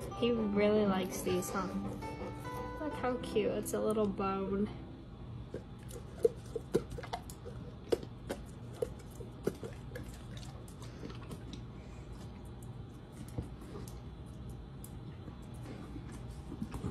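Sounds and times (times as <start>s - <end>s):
dog crunching a frozen treat: 5.5s - 16.9s.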